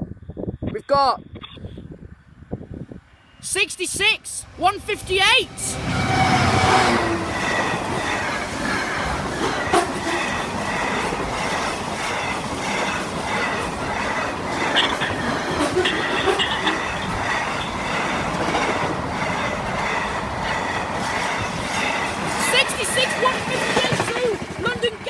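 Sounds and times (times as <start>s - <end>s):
freight train rolling past: 3.1s - 25.0s
wheels clacking: 5.8s - 25.0s.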